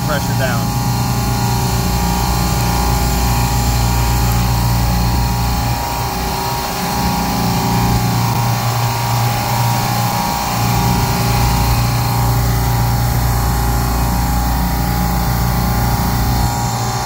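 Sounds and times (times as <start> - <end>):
steady tones: 0.0 - 9.9
refrigeration compressors humming: 0.0 - 17.0.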